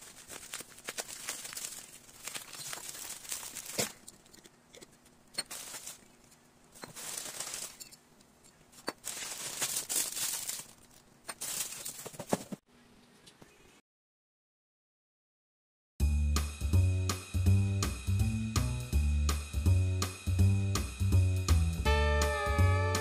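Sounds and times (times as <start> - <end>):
bubble wrap crinkling: 0.0 - 4.3, 5.4 - 7.9, 8.8 - 12.6.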